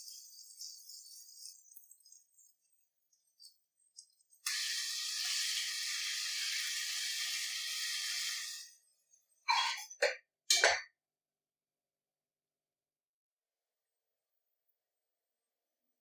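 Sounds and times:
paste sizzling in hot oil: 0:00.0 - 0:08.8
spoon scraping metal pot: 0:09.5 - 0:10.8.

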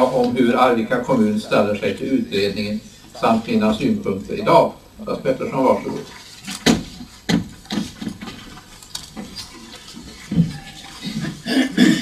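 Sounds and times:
footsteps on a hard floor: 0:09.2 - 0:11.5.

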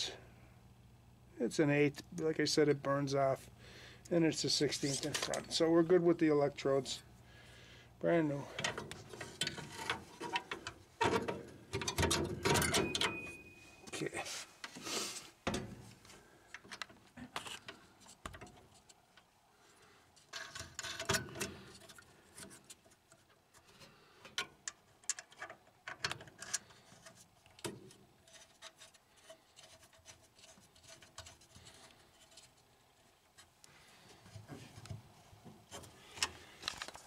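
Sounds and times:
metal clicks taps and scrapes: 0:08.6 - 0:13.2, 0:20.2 - 0:37.0.

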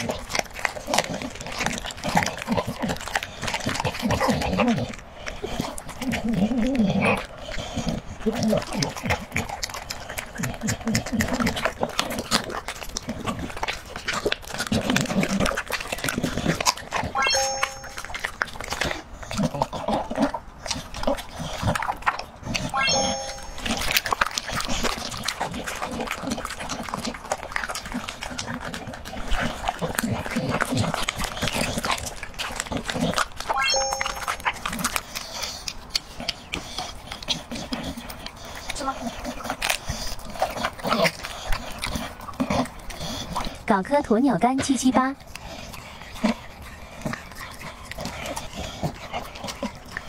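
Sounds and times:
dog chewing and licking meat: 0:00.0 - 0:50.0
rising chime: 0:17.2 - 0:18.2, 0:22.7 - 0:23.8, 0:33.6 - 0:34.4
rising electronic tones: 0:22.7 - 0:23.7.

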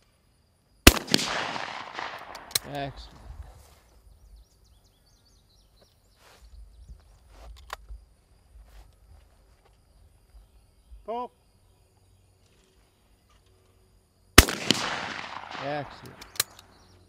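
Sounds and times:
shotgun closing clicks: 0:00.9 - 0:02.8, 0:14.4 - 0:16.8
shotgun report echoing: 0:00.9 - 0:03.4, 0:14.4 - 0:16.8.

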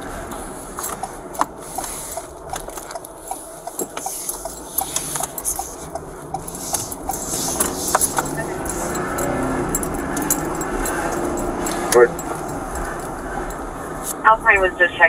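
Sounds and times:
light regular ticking: 0:00.1 - 0:14.2
soft rubbing noise: 0:03.3 - 0:09.1.

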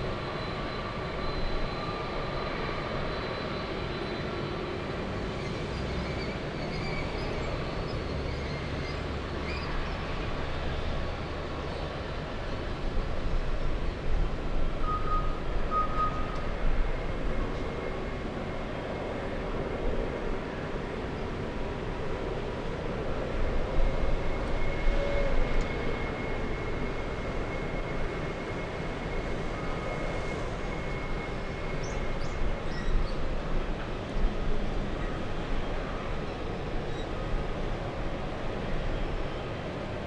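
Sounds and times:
jet engines rumbling: 0:00.0 - 0:14.8, 0:15.4 - 0:40.0.

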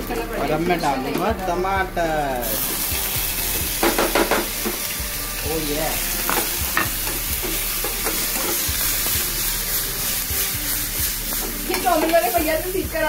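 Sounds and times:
vegetables sizzling in a frying pan: 0:00.0 - 0:13.0
spatula scraping a pan: 0:02.5 - 0:12.8.

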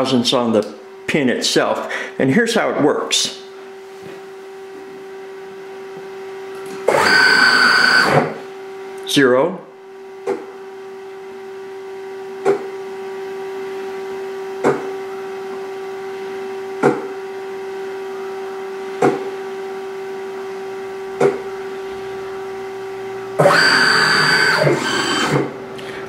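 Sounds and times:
stepper motor hum: 0:04.3 - 0:09.0, 0:10.2 - 0:26.0
motor whirring: 0:06.8 - 0:08.4, 0:23.4 - 0:25.9.

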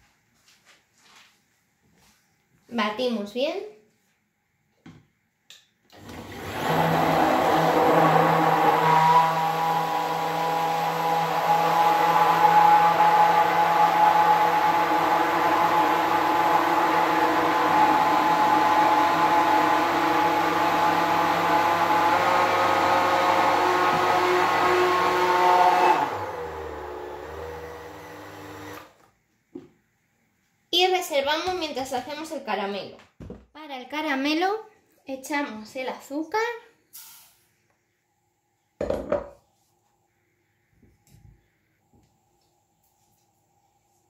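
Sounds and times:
immersion blender running: 0:05.9 - 0:29.0.

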